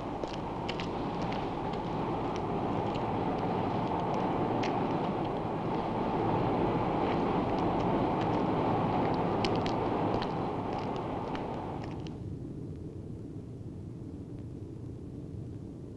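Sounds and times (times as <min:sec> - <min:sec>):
furnace roar: 0:00.0 - 0:12.1.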